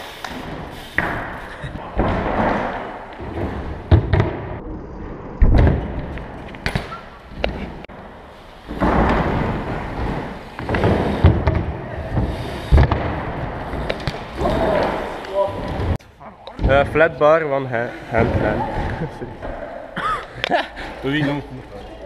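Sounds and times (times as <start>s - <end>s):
bike tyres rolling on concrete: 0.0s - 16.0s
bike landing thuds and clacks: 0.2s - 4.6s, 8.5s - 16.0s.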